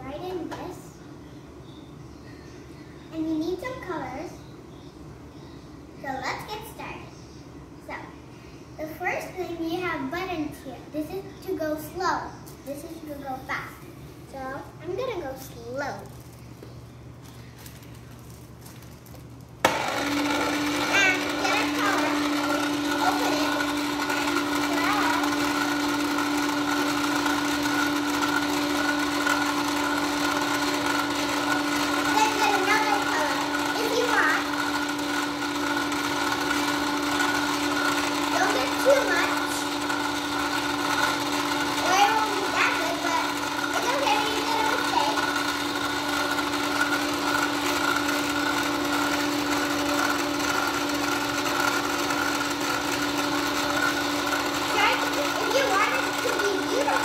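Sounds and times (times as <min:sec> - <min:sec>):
small electric motor humming: 0:19.6 - 0:57.0.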